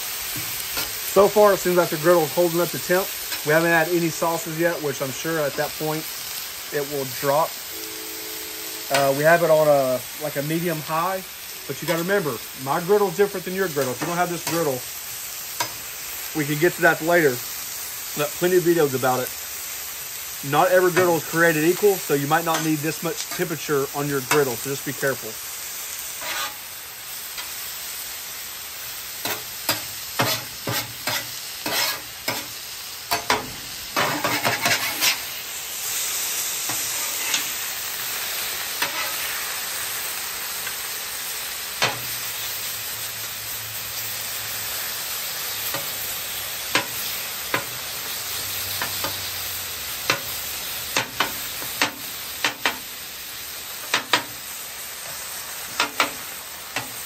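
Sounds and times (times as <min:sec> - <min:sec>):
chicken sizzling on griddle: 0:00.0 - 0:57.0
spatula clacking on metal griddle: 0:29.2 - 0:35.2, 0:38.8 - 0:39.2, 0:41.8 - 0:42.1, 0:45.7 - 0:46.0, 0:46.7 - 0:47.8, 0:50.0 - 0:52.9, 0:53.8 - 0:54.4, 0:55.7 - 0:57.0.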